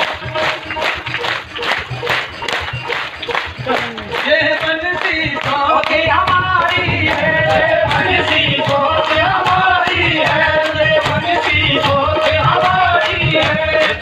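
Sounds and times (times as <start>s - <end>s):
instrumental accompaniment: 0.0s - 14.0s
steady percussion beat: 0.0s - 14.0s
devotional singing: 3.8s - 14.0s.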